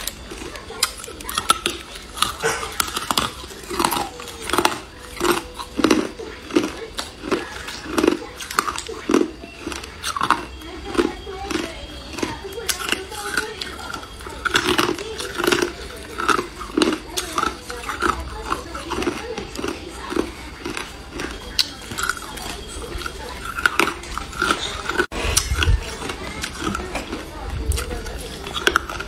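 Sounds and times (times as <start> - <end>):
ice cubes crunched by teeth: 0.0 - 29.0.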